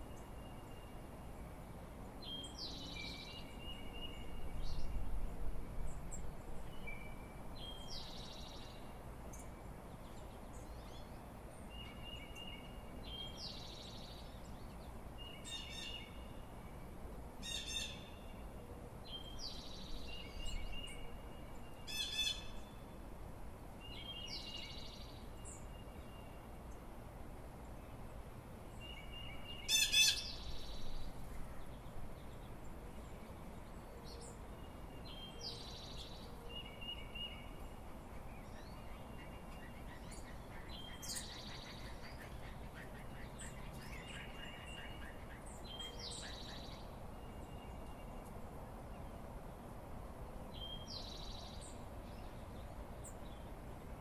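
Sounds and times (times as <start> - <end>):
songbirds chirping and singing: 2.0 - 23.1, 23.8 - 26.9, 27.6 - 49.7, 50.4 - 54.0
bird trill: 19.2 - 22.8.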